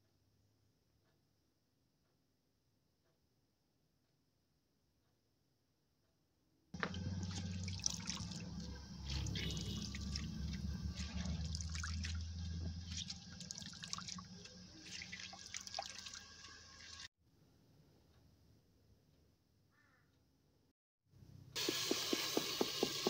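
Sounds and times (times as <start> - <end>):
low steady hum: 6.8 - 17.0
water dripping into a colander: 6.8 - 17.1.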